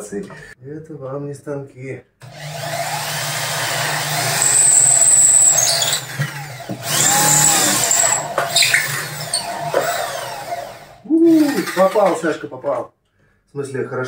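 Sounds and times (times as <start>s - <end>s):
electric drill cutting wood: 2.2s - 11.9s.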